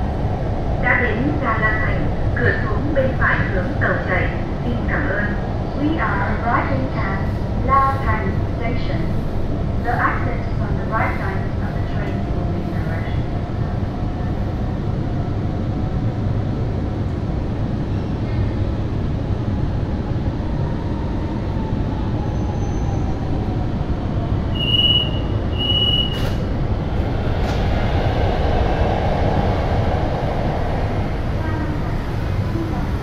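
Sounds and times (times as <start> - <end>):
train braking rumble and whine: 0.0 - 33.0.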